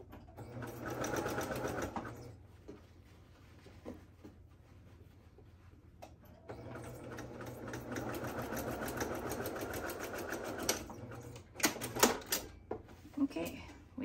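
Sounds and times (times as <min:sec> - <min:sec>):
sewing machine stitching: 0:00.2 - 0:02.3, 0:06.4 - 0:12.5.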